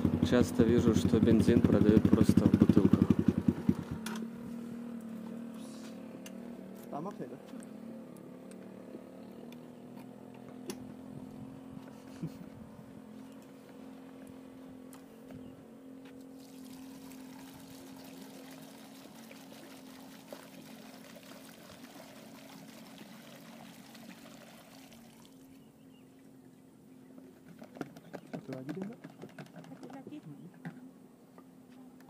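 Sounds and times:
low steady hum: 3.8 - 27.6
fuel pouring into tank: 16.3 - 25.5.

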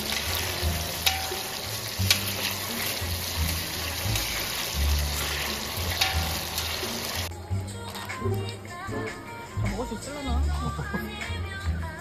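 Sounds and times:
oil sizzling in a pan: 0.0 - 7.3
background music with bassline: 0.0 - 12.0.

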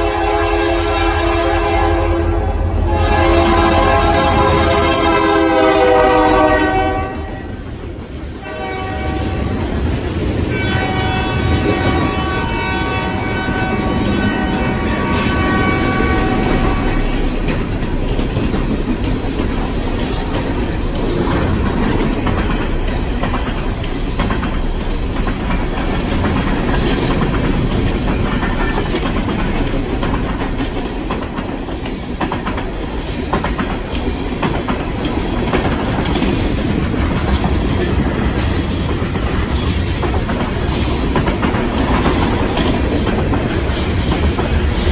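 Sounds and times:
train air horn: 0.0 - 7.6, 8.4 - 9.6, 10.5 - 17.4
train wheel clicks: 16.3 - 44.9.

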